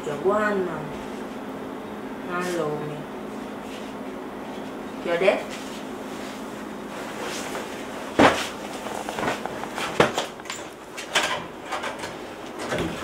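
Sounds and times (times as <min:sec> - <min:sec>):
footsteps: 0:07.0 - 0:10.5.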